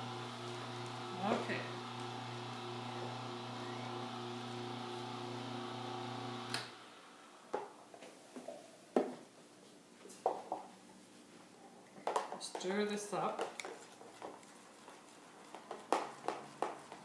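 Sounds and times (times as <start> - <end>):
electric juicer motor humming: 0.0 - 7.2
juicer switch click: 6.4 - 6.8.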